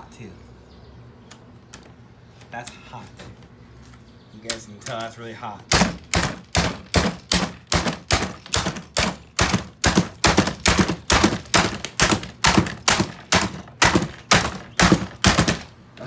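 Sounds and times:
hammer striking plastic: 5.7s - 15.8s.

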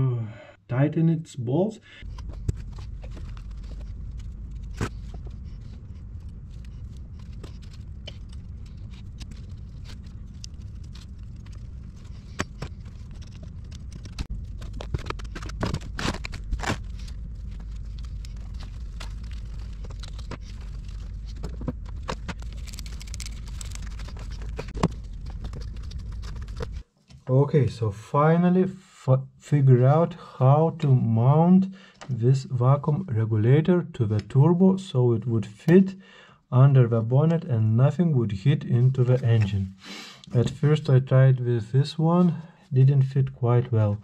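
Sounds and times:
steady low rumble: 1.8s - 31.5s.

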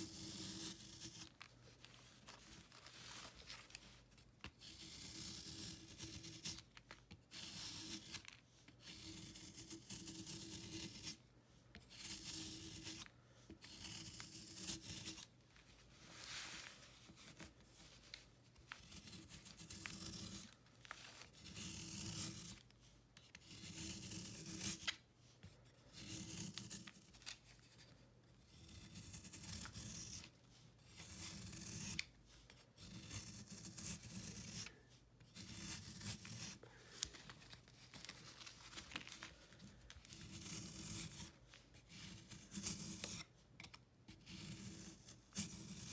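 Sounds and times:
knife blade scraping chalky block: 0.0s - 1.4s, 4.6s - 6.7s, 7.3s - 11.2s, 11.9s - 15.3s, 18.8s - 25.0s, 25.6s - 27.4s, 28.4s - 32.1s, 32.8s - 36.6s, 40.1s - 45.9s.

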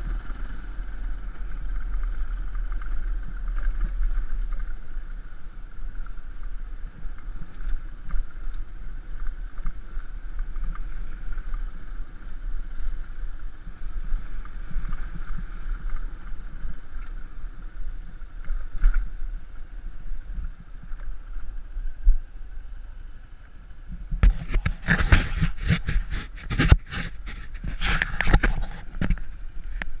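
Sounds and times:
motorcycle engine on dirt track: 0.0s - 22.7s.

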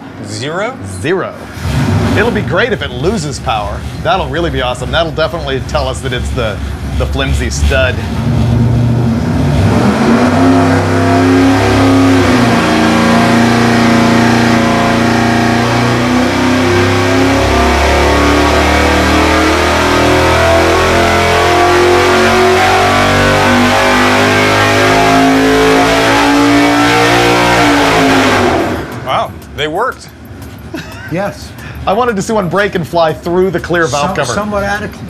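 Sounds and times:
engine revving at full throttle: 1.4s - 29.4s.

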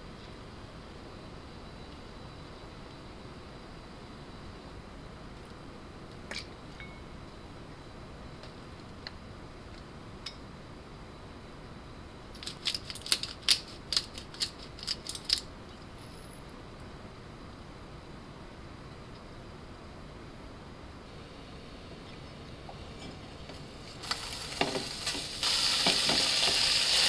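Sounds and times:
pepper grinder cracking peppercorns: 12.4s - 15.5s, 24.0s - 27.0s.

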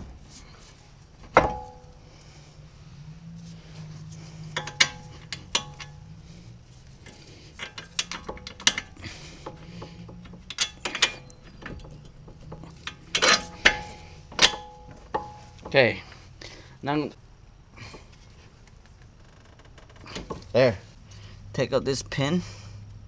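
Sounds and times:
metallic clicks of steel tools: 4.5s - 6.0s, 7.5s - 15.8s.

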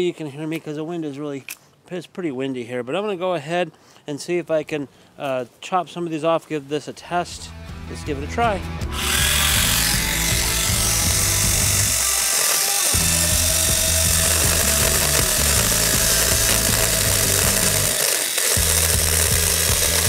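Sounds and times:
electric mini chainsaw cutting stems: 8.9s - 20.0s.

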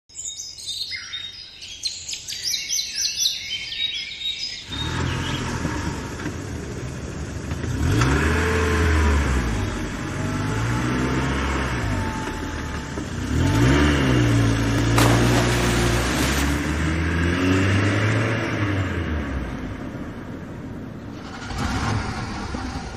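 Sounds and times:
birds chirping: 0.1s - 5.8s
vehicle engine revving: 4.7s - 20.1s.

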